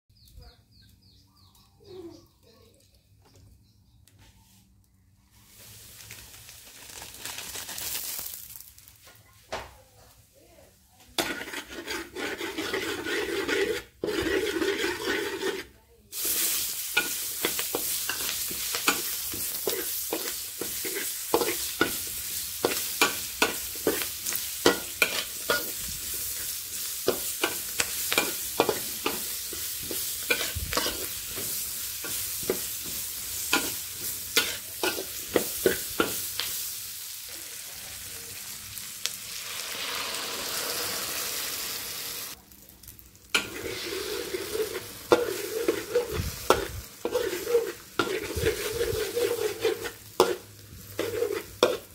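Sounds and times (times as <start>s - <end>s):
food sizzling in oil: 5.3s - 9.0s, 11.2s - 51.9s
metal spatula scraping wok: 11.1s - 36.7s, 43.3s - 51.9s.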